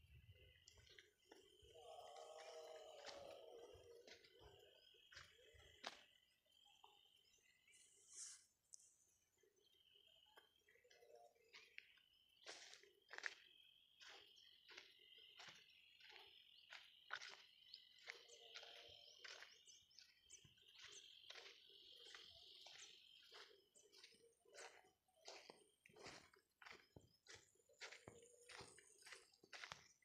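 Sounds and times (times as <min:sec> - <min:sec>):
footsteps on dry soil: 0:00.4 - 0:07.4, 0:10.8 - 0:30.0.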